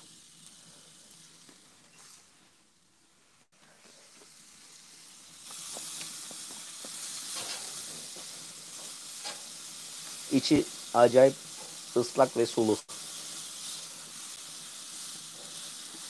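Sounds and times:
steak sizzling on grill: 0.0s - 2.5s, 3.6s - 16.0s
fat crackling on grill: 0.0s - 16.0s.

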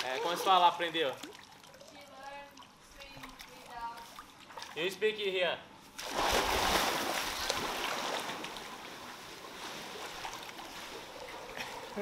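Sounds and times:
water churning and lapping: 0.0s - 4.8s, 6.0s - 12.0s
person splashing into pool: 6.0s - 9.0s.

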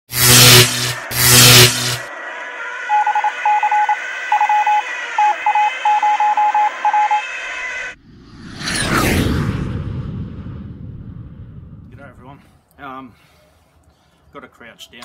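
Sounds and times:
loud rough noise burst: 0.1s - 8.0s
radio hiss and hum: 0.1s - 8.0s
rising whoosh: 1.0s - 12.2s
morse code beeps: 2.9s - 7.4s.

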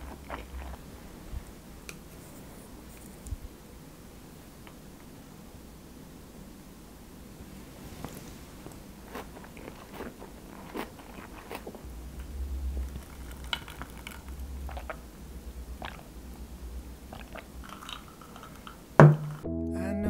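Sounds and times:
person chewing: 0.0s - 0.9s, 9.0s - 11.9s, 12.7s - 15.1s, 15.8s - 16.1s, 17.1s - 18.7s.

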